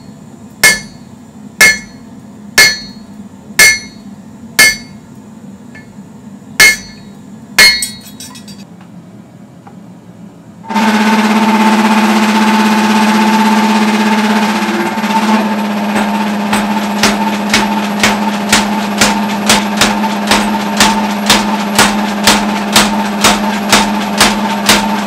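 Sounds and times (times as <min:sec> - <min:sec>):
power hammer striking steel: 0:00.0 - 0:05.0, 0:06.6 - 0:08.6, 0:10.7 - 0:25.0
motor humming: 0:10.7 - 0:25.0.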